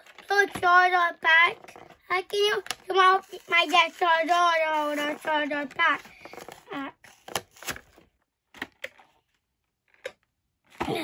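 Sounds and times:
box rustling: 0.0s - 8.1s.

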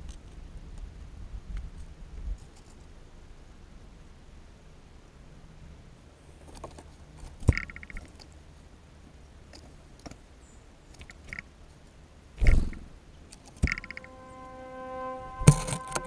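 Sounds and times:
wing flutter: 12.4s - 16.0s.

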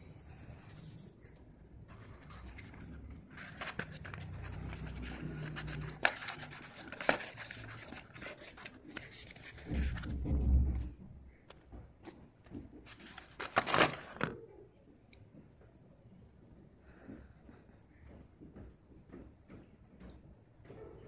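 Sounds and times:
paper wrapper rustling and tearing: 2.0s - 10.2s, 12.9s - 14.4s.

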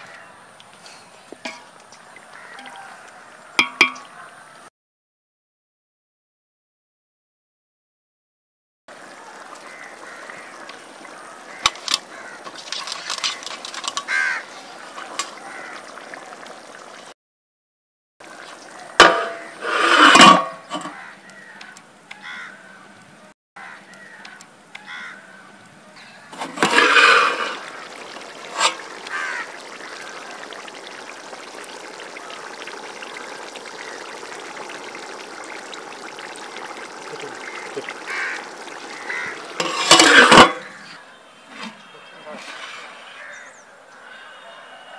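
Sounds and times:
curry bubbling in a pot: 8.9s - 17.2s, 18.2s - 20.1s, 26.4s - 40.8s.

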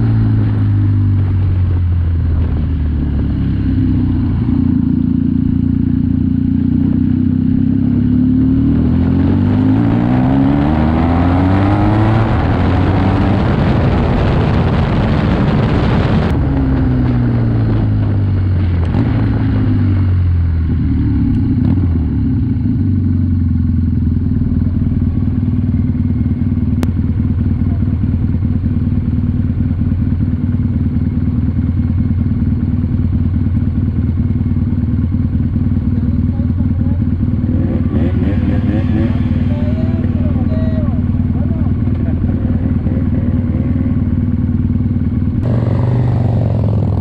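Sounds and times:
motorcycle engine slowing and idling: 0.0s - 47.0s
wind rush: 8.9s - 19.8s.

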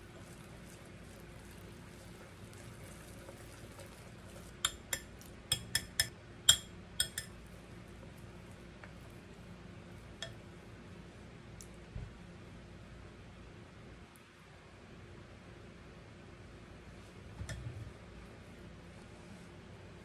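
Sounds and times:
whisk clinking on glass bowl: 4.6s - 7.4s.

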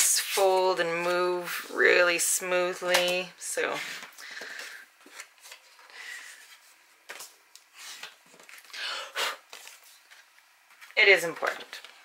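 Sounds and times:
paper rustling and scraping: 9.5s - 11.6s.

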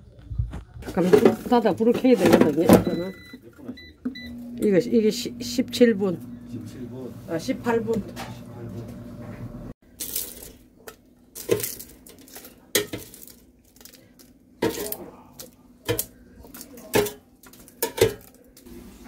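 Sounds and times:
metal tongs clinking on basket: 14.6s - 18.4s.

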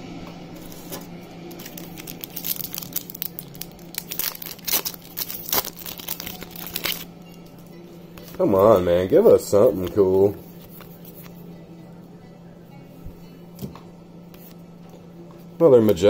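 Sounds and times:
wrapper crinkling and tearing: 0.6s - 7.2s.

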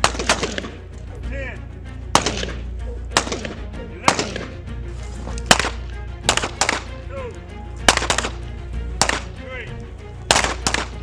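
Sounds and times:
pistol shots: 0.0s - 0.8s, 2.1s - 4.6s, 5.5s - 7.0s, 7.8s - 8.4s, 9.0s - 9.4s, 10.3s - 11.0s.

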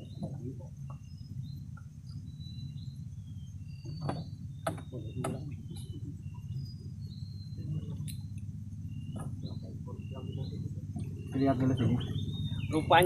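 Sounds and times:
sharp knocks on boat: 3.8s - 5.5s.

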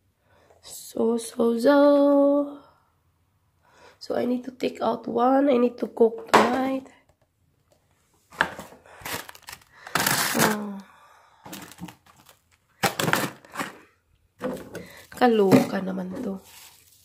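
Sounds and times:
frozen packages thunking: 8.4s - 10.7s, 11.4s - 16.8s
plastic bag crinkling: 8.9s - 10.8s, 11.5s - 13.9s, 14.5s - 17.0s.

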